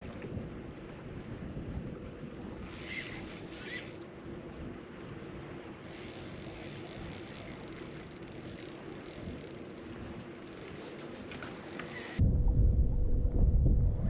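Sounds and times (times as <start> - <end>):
waves lapping against boat hull: 0.0 - 12.5
wind on microphone: 0.0 - 14.0.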